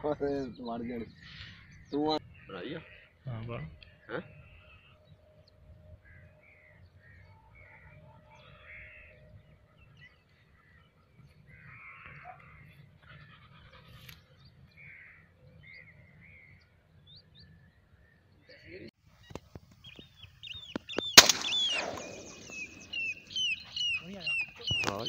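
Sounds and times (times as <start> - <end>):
distant harsh bird calls: 0.0 - 25.0
high bird chirps: 19.2 - 25.0.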